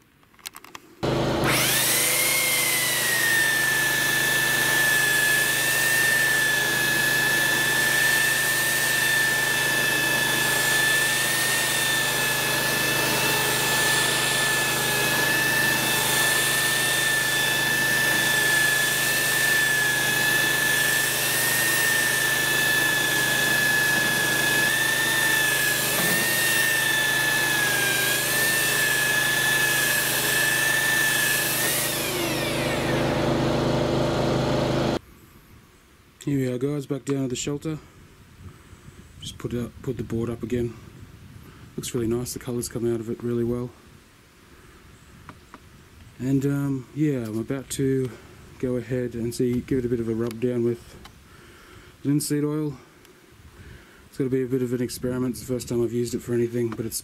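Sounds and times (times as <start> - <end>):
belt sander on wood: 1.0 - 35.0.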